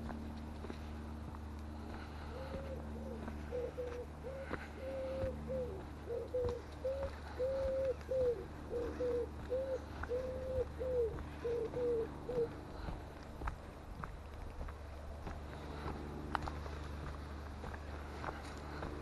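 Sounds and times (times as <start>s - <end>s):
wood pigeon cooing: 2.0s - 13.0s.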